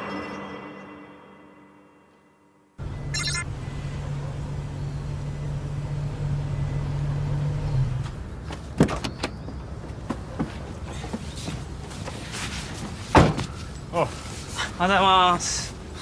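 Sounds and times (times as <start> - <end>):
car engine idling: 2.8 - 8.4.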